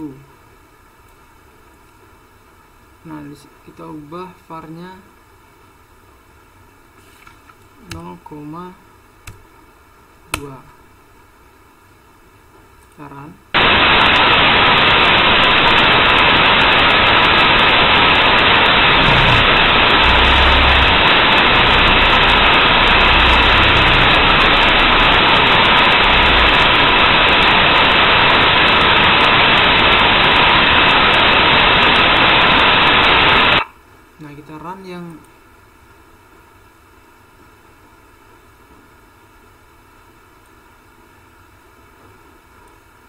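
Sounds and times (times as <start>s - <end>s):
white noise hiss: 0.0s - 43.0s.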